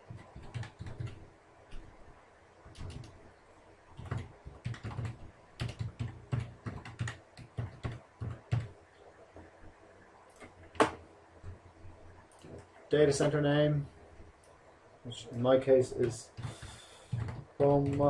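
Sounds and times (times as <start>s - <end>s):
keyboard typing: 0.0s - 1.9s, 2.7s - 3.2s, 4.0s - 8.8s, 16.0s - 18.0s.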